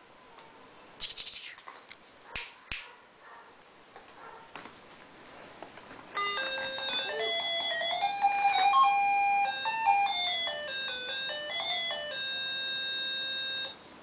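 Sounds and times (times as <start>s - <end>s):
toy beeping tune: 6.2s - 13.8s.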